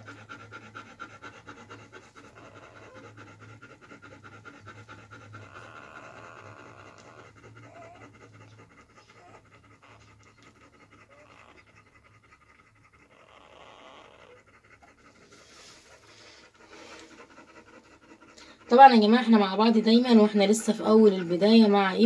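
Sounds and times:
dog panting: 0:00.0 - 0:22.0
puppies squeaking: 0:13.0 - 0:14.5.

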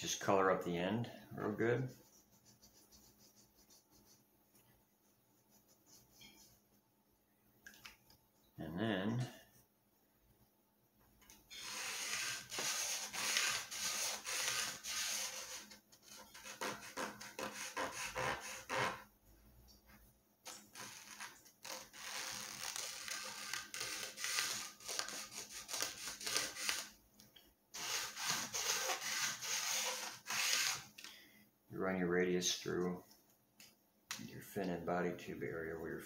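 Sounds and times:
wooden stick scratching along wood: 0:01.6 - 0:04.2, 0:11.5 - 0:19.0, 0:20.5 - 0:27.0, 0:27.8 - 0:30.9.

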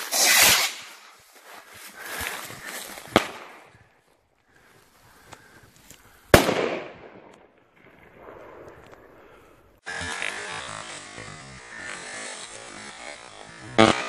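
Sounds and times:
firework rocket hiss: 0:00.0 - 0:01.1.

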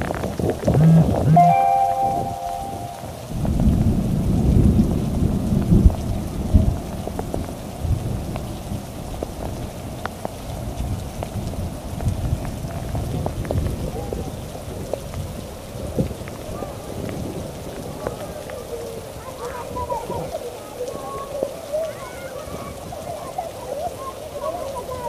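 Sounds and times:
thunder rumbling: 0:00.0 - 0:21.2
heavy rain on lawn and paving: 0:00.0 - 0:25.0
raindrops ticking: 0:00.0 - 0:25.0.

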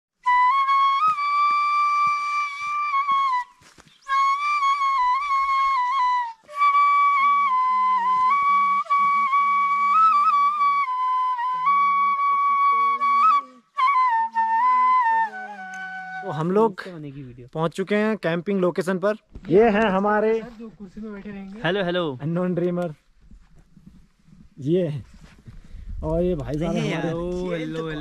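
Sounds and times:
flute playing slow melody: 0:00.1 - 0:16.6
lower flute harmony line: 0:00.1 - 0:16.8.

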